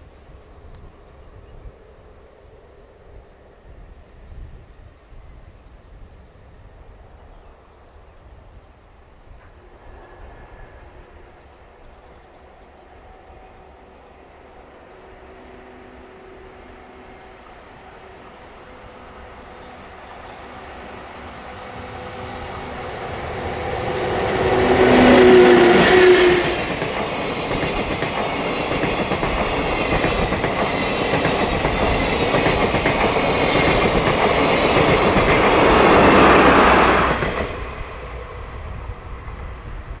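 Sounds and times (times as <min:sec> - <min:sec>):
electric locomotive passing: 0:06.4 - 0:40.0
wheels clacking over rail joints: 0:21.5 - 0:38.0.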